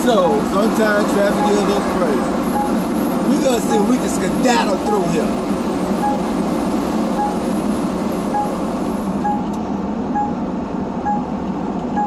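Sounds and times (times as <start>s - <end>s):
truck running on highway: 0.0s - 12.0s
short single-pitched beeps: 1.4s - 1.8s, 2.5s - 2.8s, 6.0s - 6.3s, 7.2s - 7.4s, 8.3s - 8.6s, 9.2s - 9.6s, 10.2s - 10.4s, 11.1s - 11.3s.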